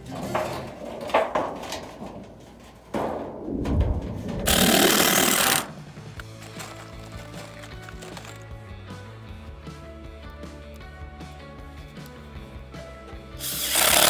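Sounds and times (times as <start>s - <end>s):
cordless drill driving screw: 13.4s - 14.0s.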